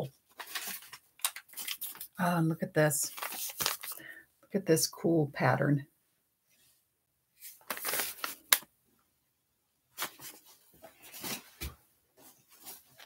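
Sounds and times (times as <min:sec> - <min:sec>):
paper envelopes rustling: 0:00.2 - 0:02.2, 0:03.0 - 0:04.0, 0:07.4 - 0:08.7, 0:10.0 - 0:13.0.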